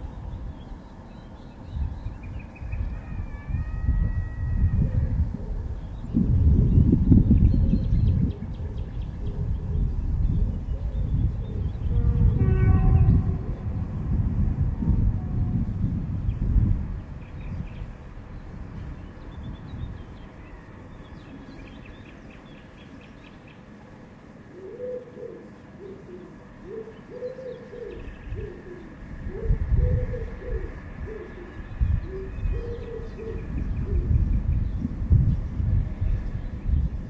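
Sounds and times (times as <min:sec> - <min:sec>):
dove cooing: 0:08.4 - 0:09.9, 0:24.5 - 0:34.2
small birds chirping: 0:16.3 - 0:37.0.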